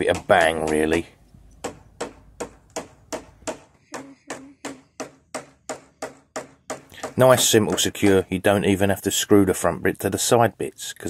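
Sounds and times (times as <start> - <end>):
mallet knocking wooden beams: 0.0 - 1.0, 1.6 - 8.3.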